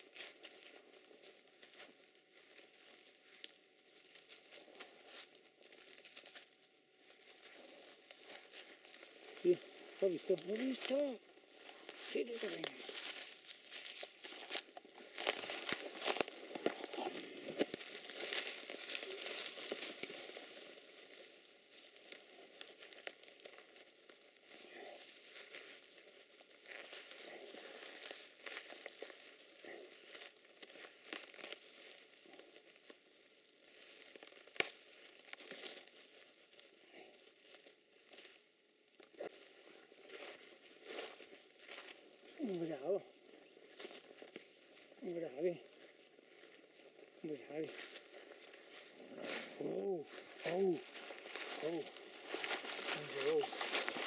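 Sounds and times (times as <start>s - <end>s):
leaves and twigs rustling: 0.0s - 54.0s
twig snapping: 11.6s - 20.3s, 30.0s - 32.1s, 33.7s - 35.9s.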